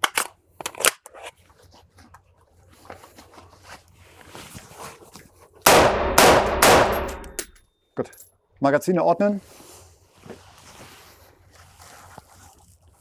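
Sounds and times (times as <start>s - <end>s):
gunshot crack: 5.7s - 7.4s
rustling of gear: 9.8s - 13.0s.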